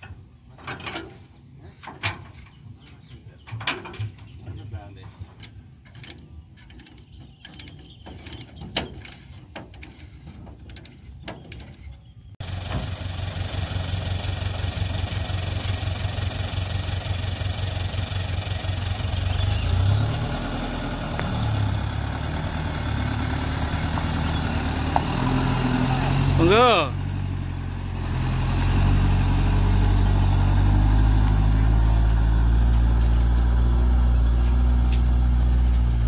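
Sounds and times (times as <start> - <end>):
faint clanks and knocks: 0.0 - 12.1
truck engine droning: 0.0 - 36.0.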